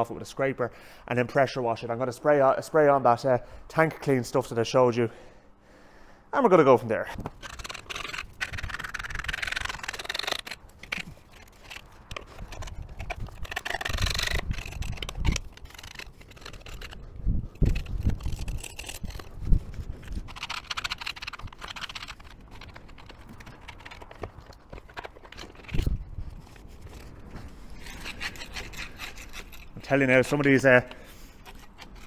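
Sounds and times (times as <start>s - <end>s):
scraper scraping grease off metal: 7.2s - 32.0s.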